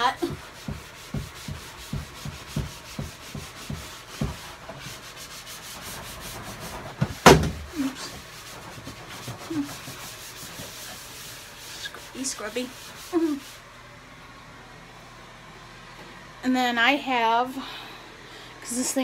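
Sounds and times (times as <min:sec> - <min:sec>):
sponge scrubbing plastic surface: 0:00.0 - 0:13.7.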